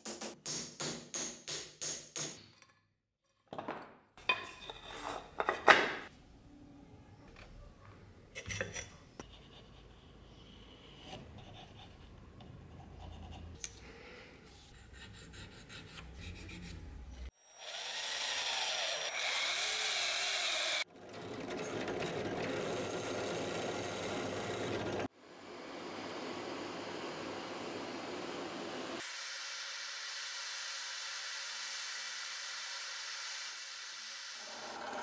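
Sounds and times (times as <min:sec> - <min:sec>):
tools scraping on workbench: 0:04.2 - 0:06.1.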